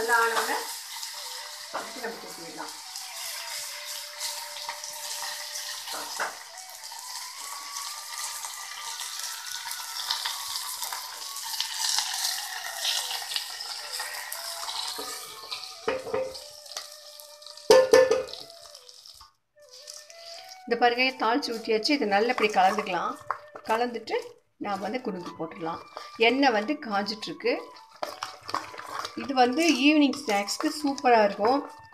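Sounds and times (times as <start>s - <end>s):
seeds sizzling in hot oil: 0.0s - 31.9s
soft instrumental music: 14.9s - 31.9s
ringing metallic knocks: 17.7s - 18.3s.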